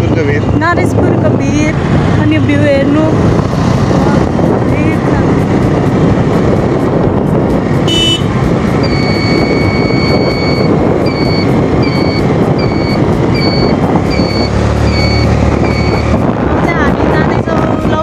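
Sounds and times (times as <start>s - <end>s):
wind buffeting microphone: 0.0s - 18.0s
scooter engine: 1.5s - 16.9s
electronic beeper beeps: 8.8s - 16.1s.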